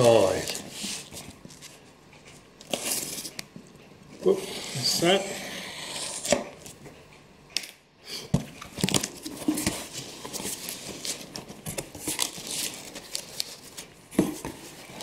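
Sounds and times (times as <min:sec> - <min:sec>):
cardboard scraping and rustling: 0:08.4 - 0:15.0.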